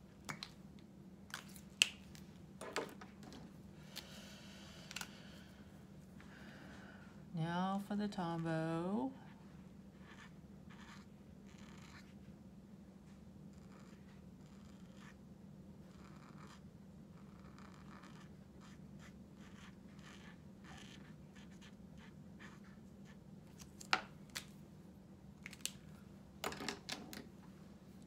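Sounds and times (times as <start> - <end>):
brush pen scratching paper: 9.3 - 12.3, 13.1 - 15.2, 15.8 - 23.6.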